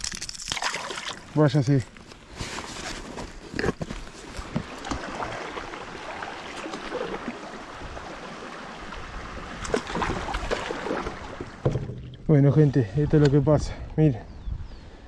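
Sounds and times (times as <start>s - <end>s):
paddle splashes: 4.3s - 12.2s
knocks on kayak: 11.5s - 12.1s.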